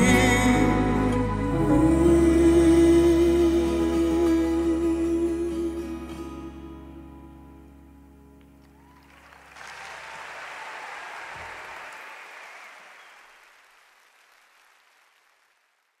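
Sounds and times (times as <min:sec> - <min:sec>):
sustained ballad chord: 0:00.0 - 0:08.8
audience applause: 0:08.8 - 0:16.0.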